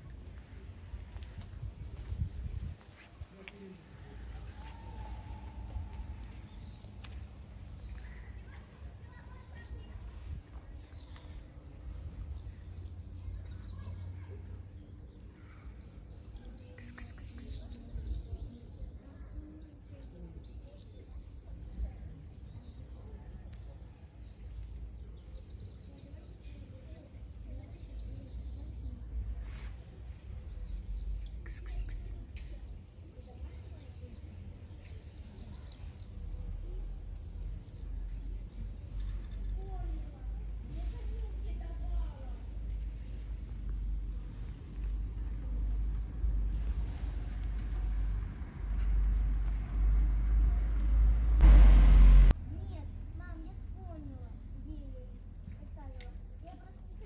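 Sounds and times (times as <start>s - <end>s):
small birds chirping: 0.0s - 48.2s, 52.5s - 57.0s
steady low rumble: 41.9s - 52.5s.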